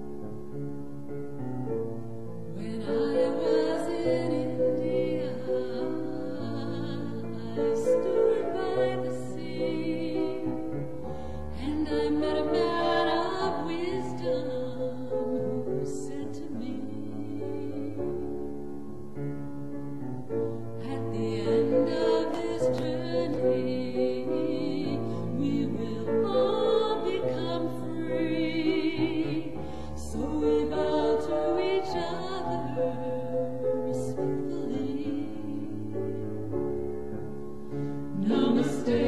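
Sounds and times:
choir singing held notes: 0:38.1 - 0:39.0.

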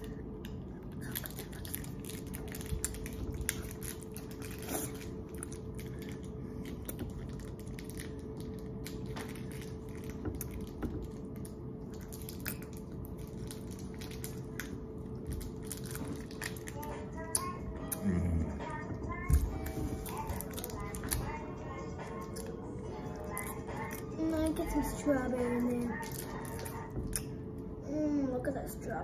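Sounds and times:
low hum: 0:00.0 - 0:29.0
mouth sounds of eating: 0:17.2 - 0:18.7.

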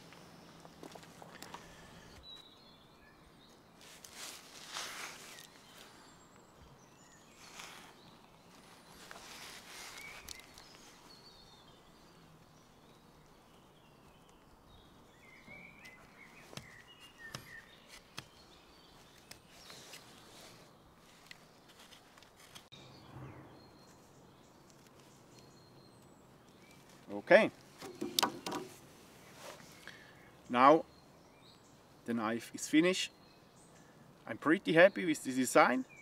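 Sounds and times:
bird chirps: 0:09.8 - 0:20.7, 0:22.7 - 0:28.7.

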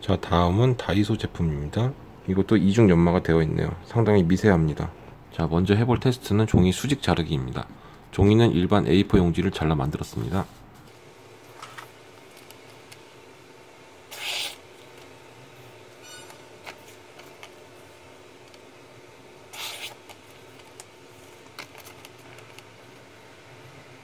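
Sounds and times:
paper scraping on blade: 0:14.1 - 0:14.6, 0:19.5 - 0:20.1.

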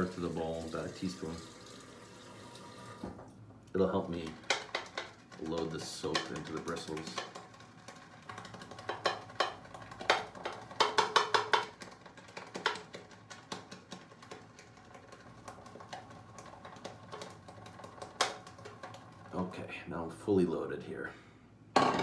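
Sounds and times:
shaving brush wet clicking taps: 0:04.1 - 0:19.1.

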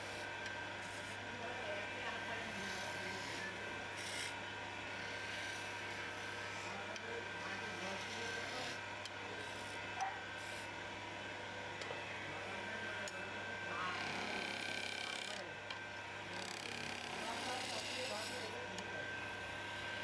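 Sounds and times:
lathe humming: 0:00.0 - 0:20.0
turning tool scraping wood: 0:02.5 - 0:06.8, 0:07.5 - 0:08.8, 0:16.4 - 0:18.6.

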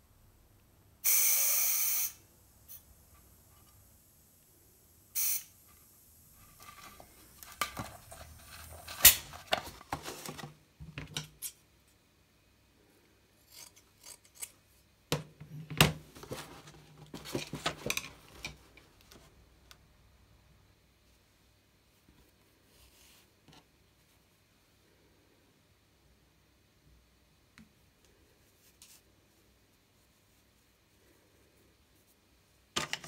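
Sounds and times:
scissors cutting steel wool: 0:13.4 - 0:14.6.

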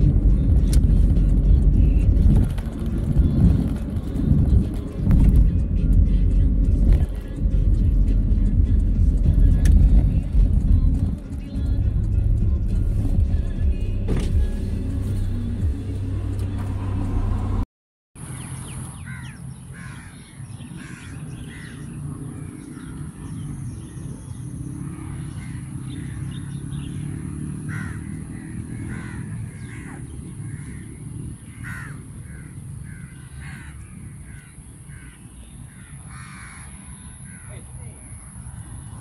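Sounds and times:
crows cawing: 0:19.0 - 0:23.0, 0:25.0 - 0:26.2, 0:27.6 - 0:37.6.

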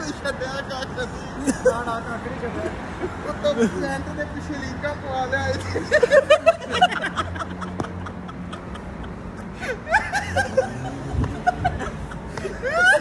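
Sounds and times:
men laughing: 0:00.0 - 0:13.0.

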